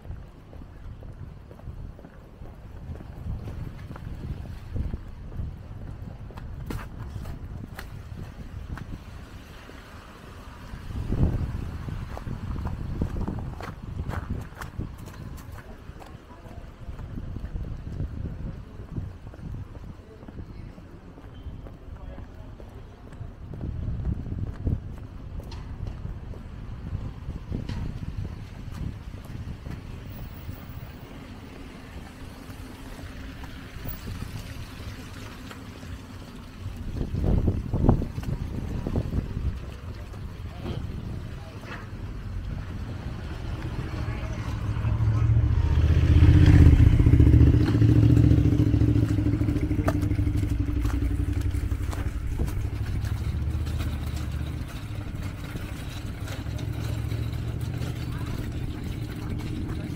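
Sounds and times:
city street traffic: 0.0s - 59.9s
tyres hissing on wet road: 8.9s - 13.0s, 29.8s - 42.0s
vehicle engine running: 42.0s - 59.9s.

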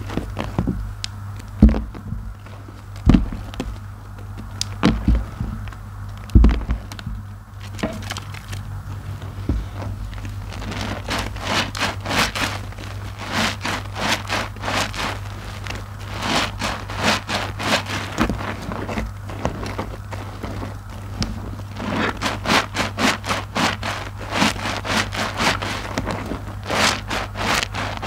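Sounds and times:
dull thumps: 0.0s - 1.0s, 1.6s - 8.6s, 9.4s - 15.0s
steady low hum: 0.0s - 28.0s.

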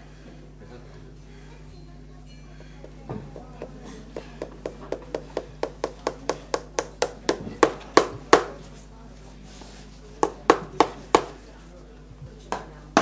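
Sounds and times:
hammer tapping on workpiece: 2.6s - 8.5s, 10.2s - 11.4s.

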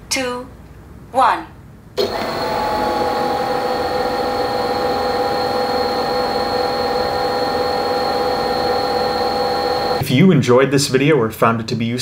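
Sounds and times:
drone motors whining: 2.0s - 10.0s.

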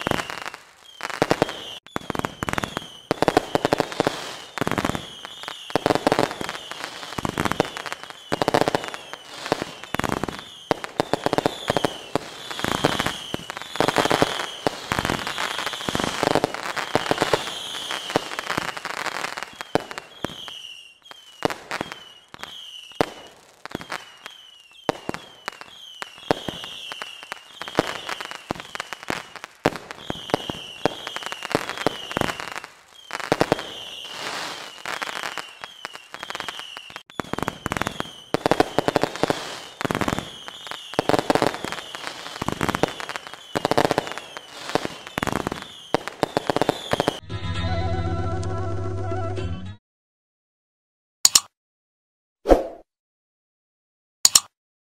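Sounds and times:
falling whistles: 0.0s - 3.2s, 8.0s - 10.8s, 16.8s - 18.9s, 19.5s - 29.0s, 30.0s - 38.4s, 43.0s - 48.3s
fireworks bangs: 0.0s - 47.2s
fireworks crackling: 0.0s - 47.2s.

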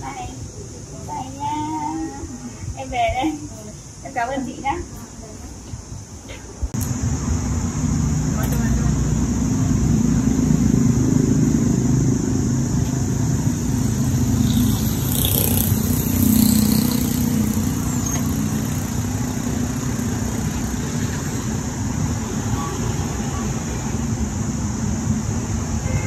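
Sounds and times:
motorbike and car engines: 6.7s - 26.0s.

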